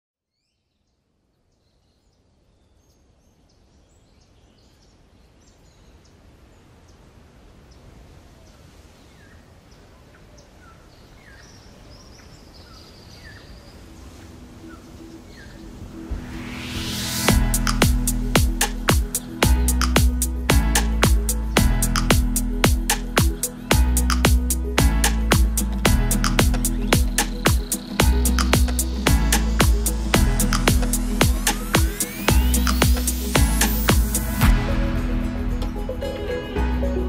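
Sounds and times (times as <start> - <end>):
birds chirping: 8.5 - 34.4
background music: 14.1 - 37.0
low rushing ambience: 14.2 - 37.0.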